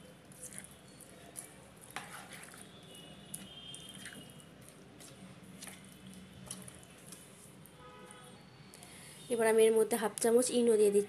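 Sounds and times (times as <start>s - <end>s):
spoon stirring thick batter: 0.0s - 8.4s.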